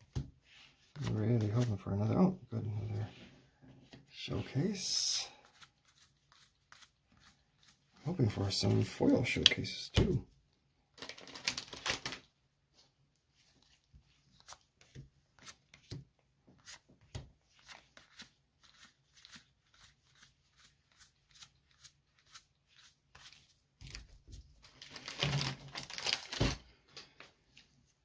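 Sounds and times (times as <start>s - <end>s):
cards rustling: 0.9s - 1.9s, 13.4s - 27.7s.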